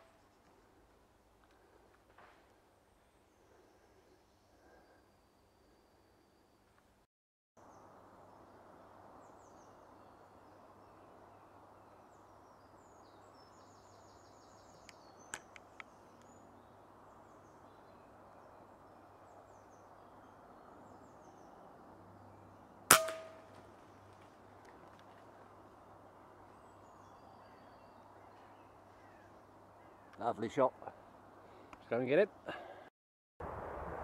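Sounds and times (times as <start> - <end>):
outdoor background noise: 0.0 - 34.0
air rifle shot: 22.9 - 23.5
small bird calls: 26.4 - 32.0.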